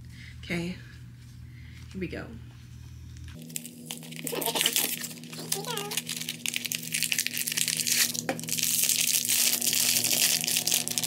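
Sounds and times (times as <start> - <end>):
cardboard tearing: 3.4 - 11.0
foil pouch crinkling: 3.4 - 11.0.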